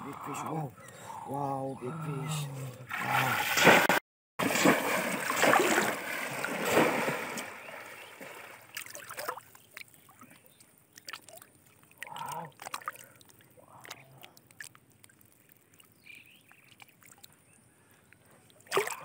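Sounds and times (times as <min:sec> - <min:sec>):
heavy splashing in muddy water: 0:02.9 - 0:09.4, 0:18.7 - 0:19.0
water dripping: 0:04.6 - 0:19.0.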